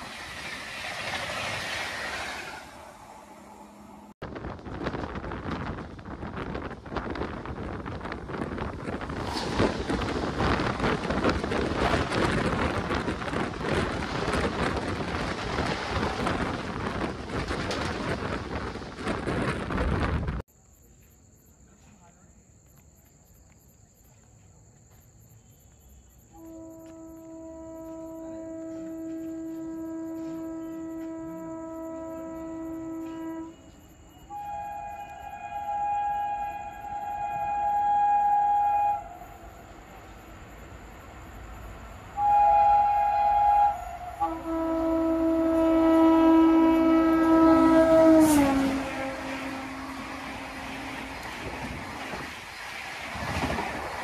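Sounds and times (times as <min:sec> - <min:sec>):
rush of wind: 0:00.0 - 0:20.5, 0:45.4 - 0:54.0
train wheels clattering over rails: 0:04.6 - 0:20.4
locomotive horn blasts: 0:26.4 - 0:39.4, 0:42.2 - 0:50.6.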